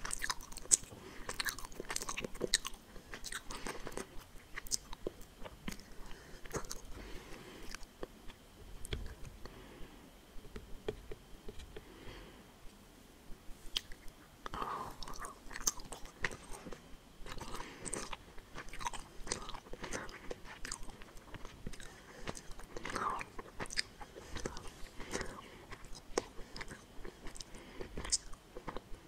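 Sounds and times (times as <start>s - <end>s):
chewing gummy candy: 0.0s - 7.0s, 13.7s - 29.0s.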